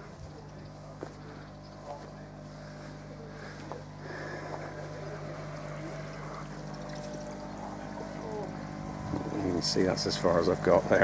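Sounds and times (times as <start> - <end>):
pond pump electric hum: 0.0 - 11.0
water running through filter: 0.0 - 11.0.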